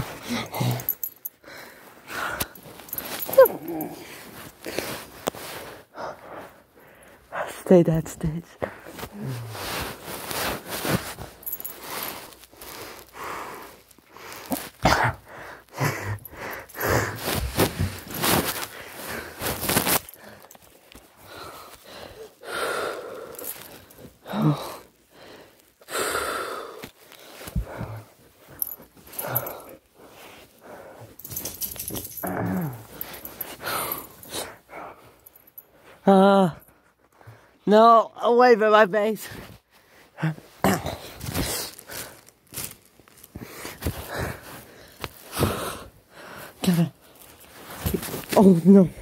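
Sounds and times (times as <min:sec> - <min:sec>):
rustling: 0:02.4 - 0:05.8, 0:08.8 - 0:14.8, 0:16.2 - 0:22.2, 0:23.3 - 0:24.2, 0:26.8 - 0:34.3, 0:39.4 - 0:45.3, 0:47.0 - 0:48.6
puppy huffing and grumbling: 0:03.1 - 0:04.2.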